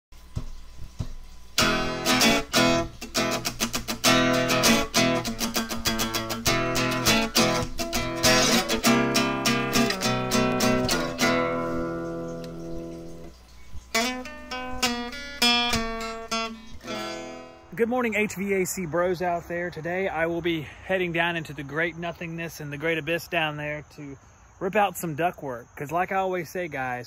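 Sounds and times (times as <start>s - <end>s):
strummed guitar chords: 1.6s - 13.3s, 13.9s - 17.8s.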